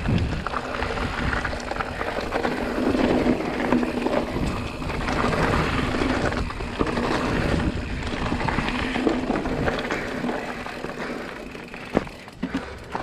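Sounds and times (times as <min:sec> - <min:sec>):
wind rushing over microphone: 0:00.0 - 0:10.1
bike clicks and knocks: 0:00.0 - 0:13.0
tyres rolling on dirt: 0:00.0 - 0:13.0.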